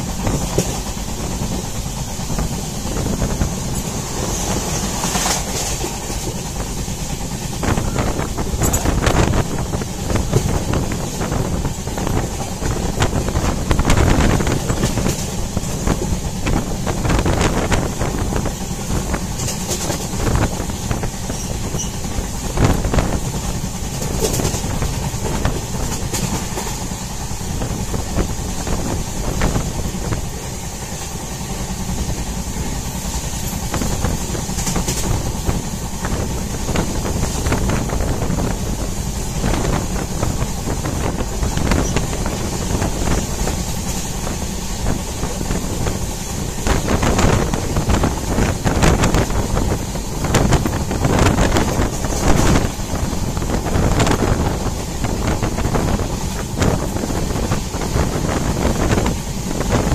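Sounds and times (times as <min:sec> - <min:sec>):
clacks over rail joints: 0:00.0 - 0:59.9
train wheels rumbling on rails: 0:00.0 - 0:59.9.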